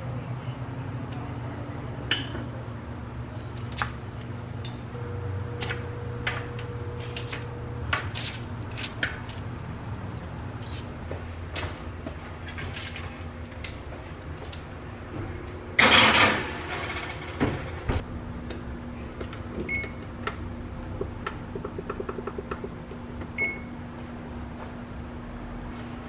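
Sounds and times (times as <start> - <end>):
low steady hum: 0.0 - 26.0
metal baking sheet scraping: 15.8 - 17.7
oven door shutting: 15.8 - 18.0
control panel beeps: 23.4 - 23.7.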